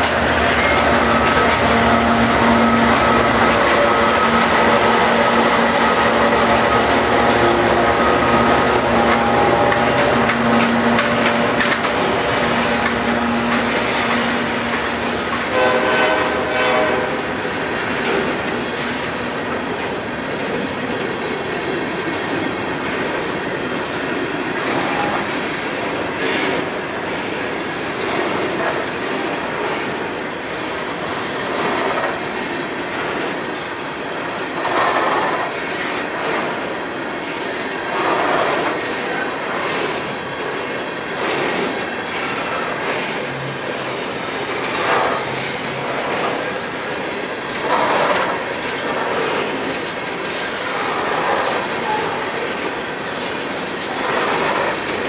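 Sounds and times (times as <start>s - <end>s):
train horn: 0.0s - 17.4s
freight train wheels clattering: 0.0s - 55.0s.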